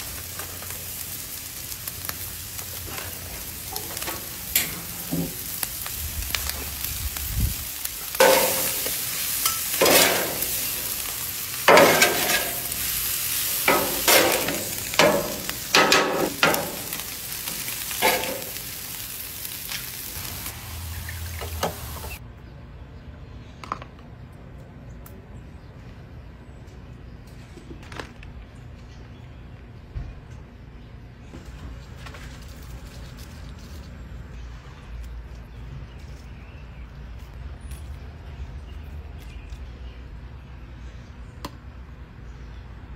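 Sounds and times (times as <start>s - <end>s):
meat sizzling on a griddle: 0.0s - 22.2s.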